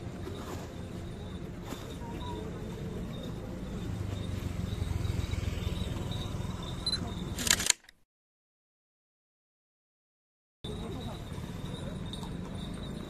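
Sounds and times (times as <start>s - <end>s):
outdoor background hum: 0.0s - 8.0s, 10.6s - 13.0s
camera shutter clicking: 7.4s - 8.0s.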